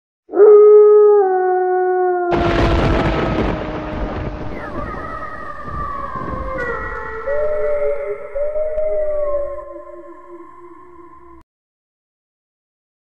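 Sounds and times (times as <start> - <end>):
howl dropping in pitch: 0.3 - 11.4
boom with rushing hiss: 2.3 - 8.3.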